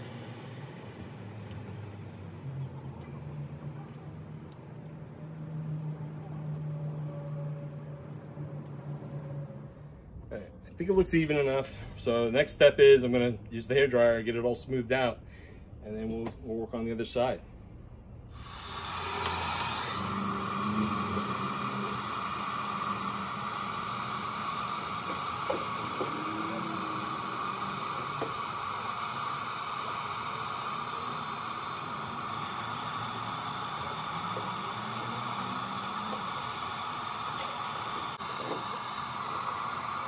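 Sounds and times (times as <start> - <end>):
hair dryer blowing: 18.3 - 40.0.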